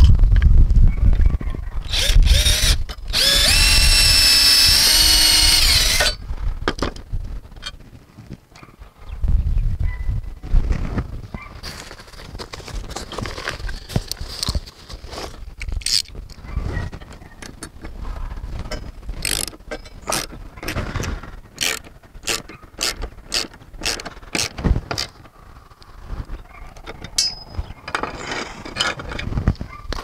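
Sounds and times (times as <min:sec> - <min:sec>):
socket wrench ratcheting: 0:01.9 - 0:06.2, 0:15.6 - 0:16.2, 0:19.2 - 0:20.3, 0:21.6 - 0:25.2.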